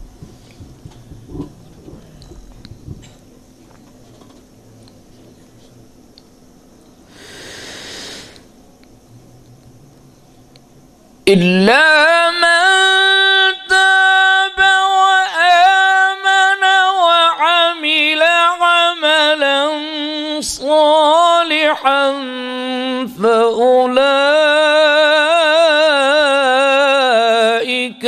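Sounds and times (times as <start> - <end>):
man reciting melodically: 11.3 - 28.0.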